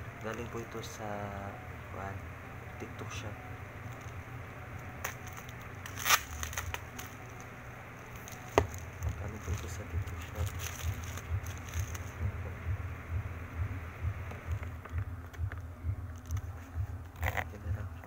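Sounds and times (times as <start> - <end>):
bubble wrap crinkling: 3.8 - 12.2, 14.5 - 17.6
scissors cutting plastic: 5.0 - 7.5, 8.1 - 12.2.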